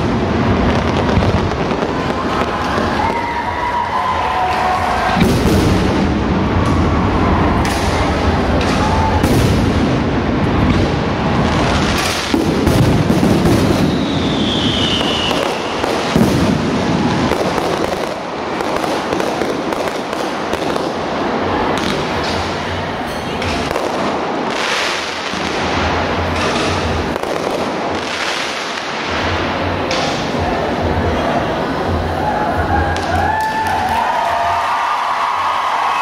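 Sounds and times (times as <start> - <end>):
fireworks crackling pops: 0.0 - 3.4, 4.5 - 6.9, 7.6 - 22.6, 23.4 - 30.4
fireworks booming: 0.0 - 3.6, 4.8 - 22.7, 23.4 - 31.0
falling firework whistle: 12.0 - 18.2.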